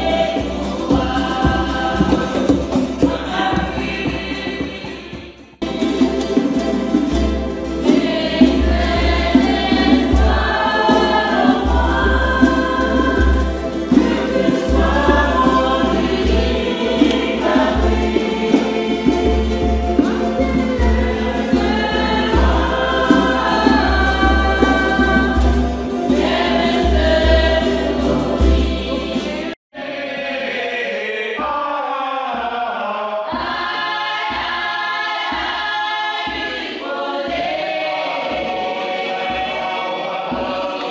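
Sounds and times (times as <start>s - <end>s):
strummed guitars and ukuleles: 0.0s - 29.6s
congregation singing a hymn: 0.0s - 40.9s.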